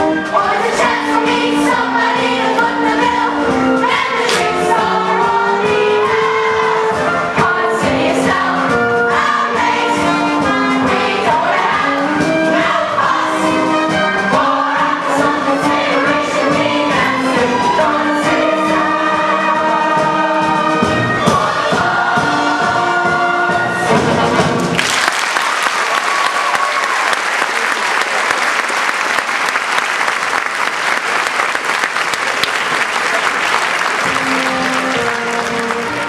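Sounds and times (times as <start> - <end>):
cast singing with orchestra: 0.0 - 24.6
orchestra playing: 0.0 - 25.0, 30.0 - 36.0
audience applauding: 24.7 - 36.0.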